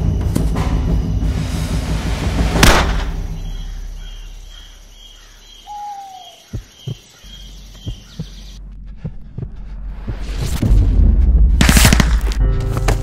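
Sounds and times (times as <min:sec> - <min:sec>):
loud booming hit: 0:01.4 - 0:03.5
bird high chirp: 0:03.3 - 0:08.6.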